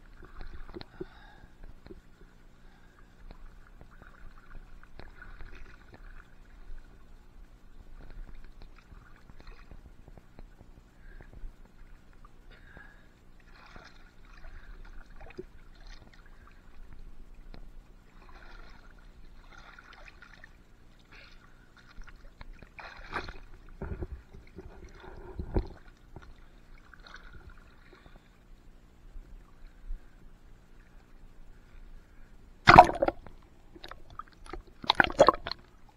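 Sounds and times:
water sloshing and splashing: 0.0 - 7.1, 7.8 - 10.7, 13.4 - 28.3, 32.7 - 35.9.

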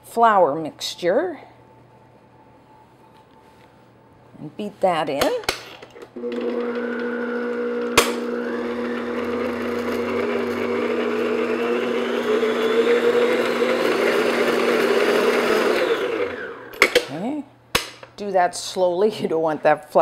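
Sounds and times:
stand mixer humming: 6.2 - 16.8.

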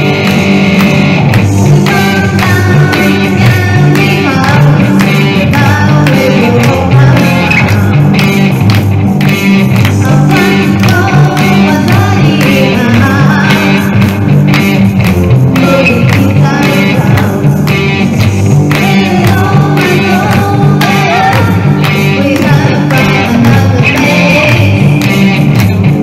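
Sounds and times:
amplified electric guitar: 0.0 - 26.0
low bass notes: 0.0 - 26.0
person singing through pa: 1.5 - 8.4, 9.7 - 26.0.

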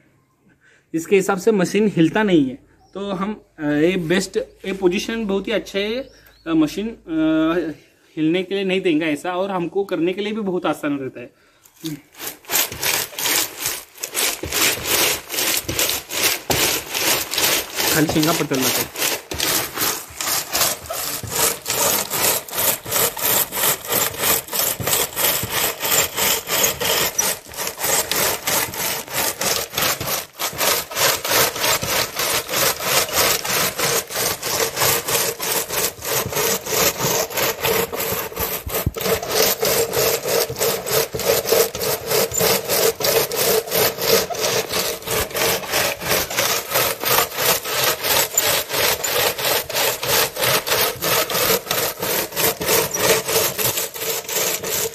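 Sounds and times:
shelling machine rasping strokes: 11.8 - 54.9.

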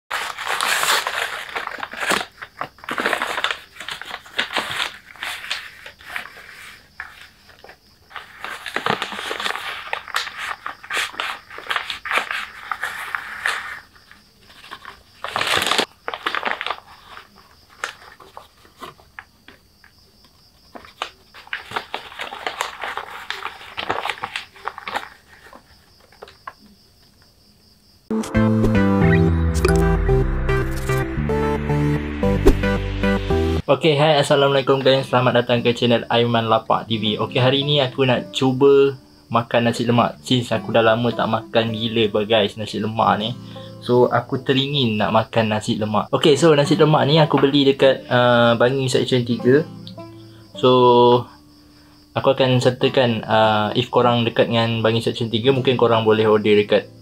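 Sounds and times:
sharp paper crackle: 0.1 - 19.3, 20.7 - 26.6
paper wrapping crinkling: 0.1 - 19.6, 20.7 - 26.6.

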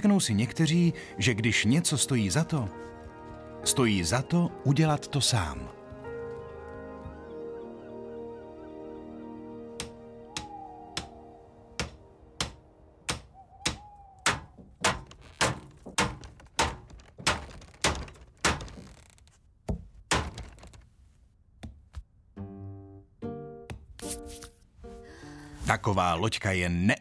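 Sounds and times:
hammer knocking on wood: 11.8 - 18.7.

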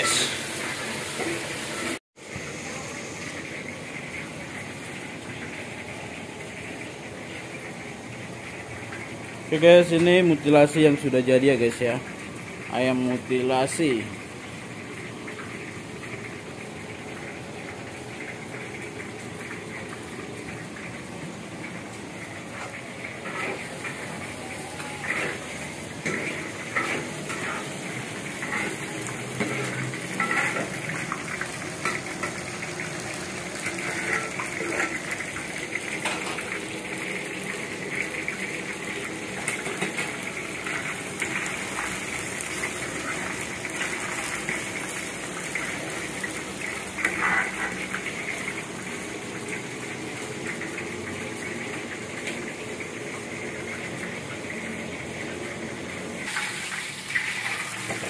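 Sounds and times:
metal pots and dishes clinking: 0.0 - 0.4, 24.7 - 32.4, 35.9 - 36.6, 47.0 - 47.9.

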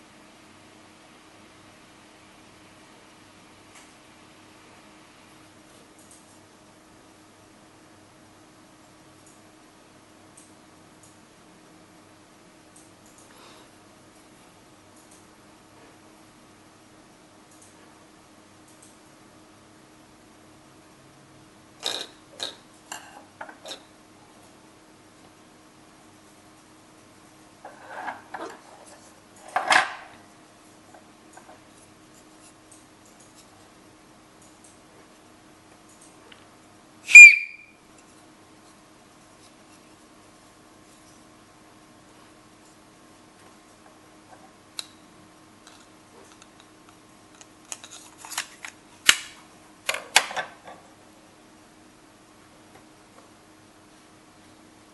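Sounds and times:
knife handling noise: 47.3 - 48.8.

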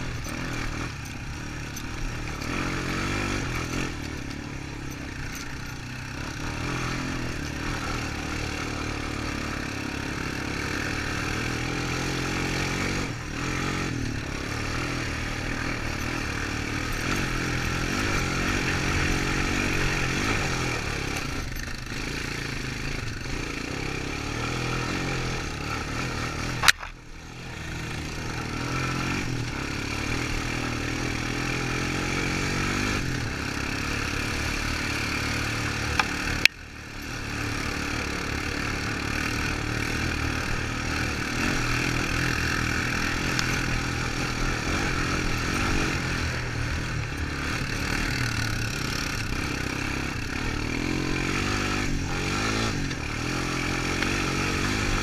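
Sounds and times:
atv engine running: 0.0 - 55.0
sharp clicks: 26.6 - 27.0.

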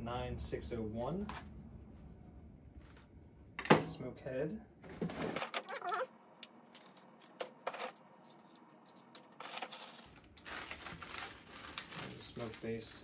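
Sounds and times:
wrapping crinkling: 6.8 - 13.0.

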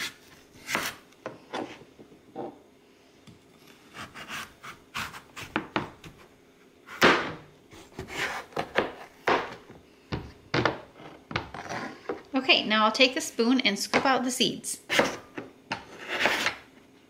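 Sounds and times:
knife cutting squash: 0.0 - 1.8, 3.6 - 6.2, 7.7 - 9.2, 14.9 - 16.6.

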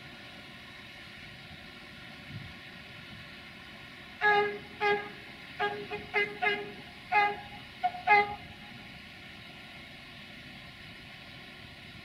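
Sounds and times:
locomotive air horn toots: 4.2 - 8.8.

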